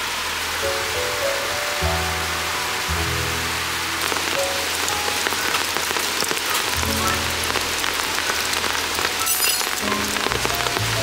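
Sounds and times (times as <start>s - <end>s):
heavy rain falling: 0.0s - 11.0s
soft background music: 0.6s - 6.1s.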